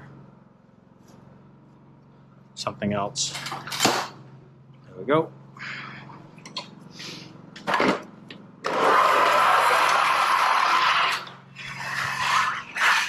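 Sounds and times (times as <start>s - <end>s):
short scrape: 8.7s - 13.0s.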